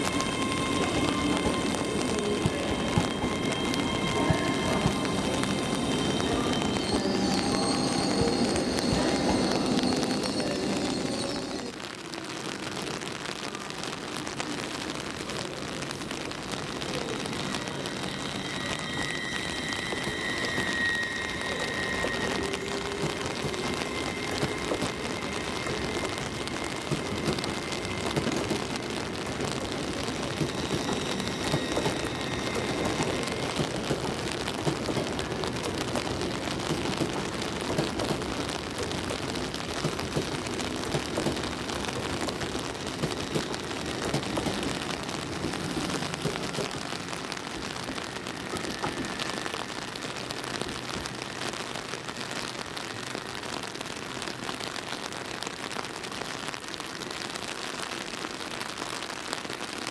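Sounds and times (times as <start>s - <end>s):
train wheel and rail noise: 0.0s - 59.9s
faint high whine: 16.8s - 34.5s.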